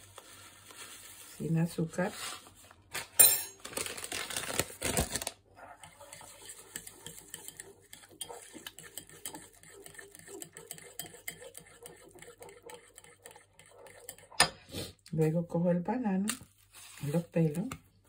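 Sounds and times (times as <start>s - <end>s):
metal spoon scraping ceramic bowl: 5.7s - 14.7s.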